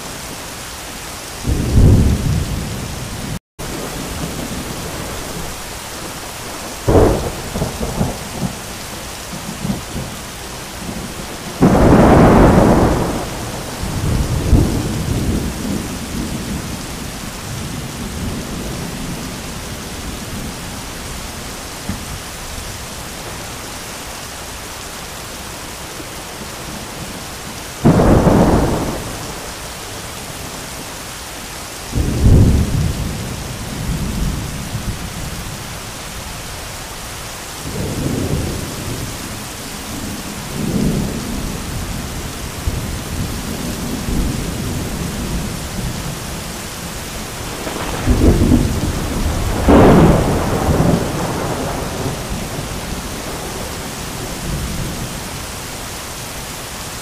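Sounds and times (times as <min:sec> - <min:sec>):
heavy rain pouring: 0:00.0 - 0:57.0
thunder cracking and rumbling: 0:01.4 - 0:20.6, 0:27.8 - 0:29.6, 0:39.9 - 0:55.2.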